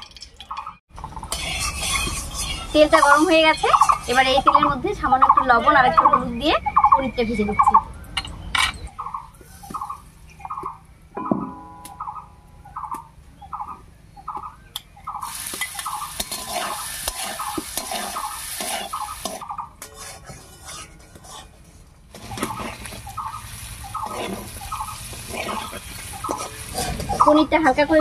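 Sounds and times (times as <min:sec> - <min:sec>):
metal spatula scraping pan: 0:01.2 - 0:04.7, 0:15.6 - 0:23.0, 0:24.0 - 0:27.4
food sizzling in hot oil: 0:01.3 - 0:04.2, 0:15.2 - 0:19.4, 0:22.1 - 0:27.2
bird calling: 0:02.0 - 0:19.8, 0:22.2 - 0:27.5.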